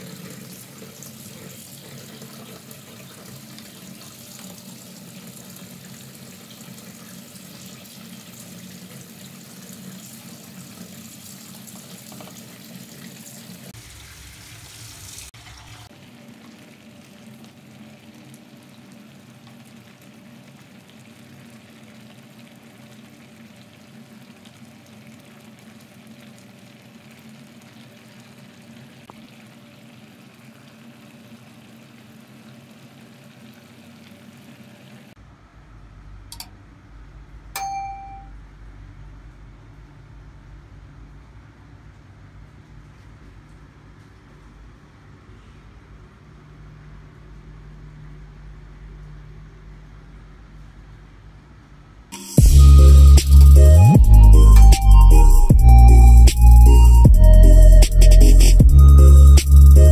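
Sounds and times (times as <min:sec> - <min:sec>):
sauce bubbling in a frying pan: 0:00.0 - 0:35.2.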